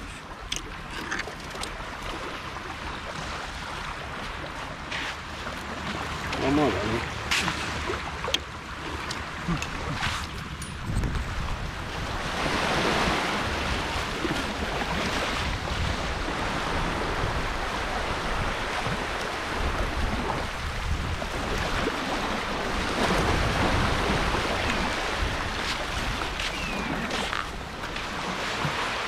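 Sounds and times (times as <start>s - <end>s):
small waves breaking on sand: 1.8s - 10.4s, 11.3s - 29.0s
wind rumble on microphone: 6.3s - 29.0s.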